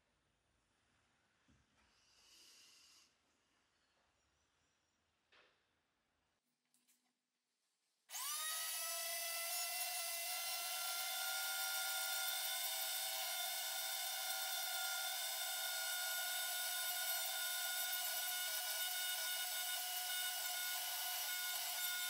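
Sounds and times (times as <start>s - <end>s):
rotary tool whining: 8.1s - 22.0s.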